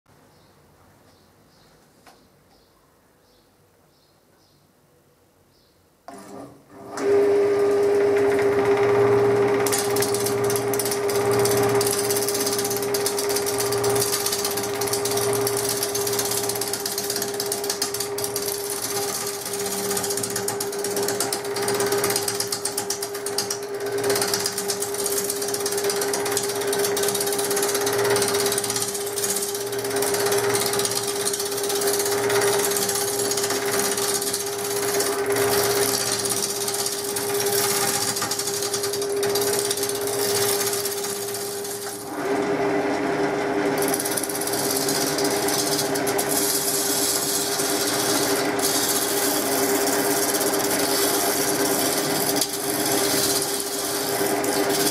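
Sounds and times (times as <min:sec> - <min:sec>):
gouge cutting spinning wood: 0:07.0 - 0:54.9
lathe motor humming: 0:07.0 - 0:54.9.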